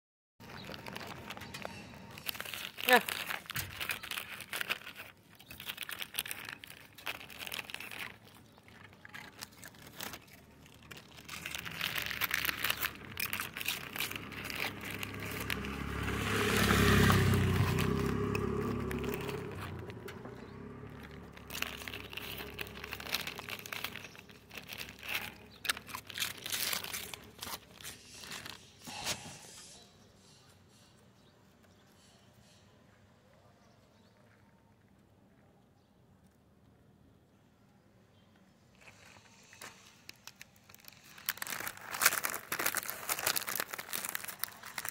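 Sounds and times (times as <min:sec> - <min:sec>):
rustling and crinkling handling noise: 0:00.4 - 0:29.8, 0:38.6 - 0:44.9.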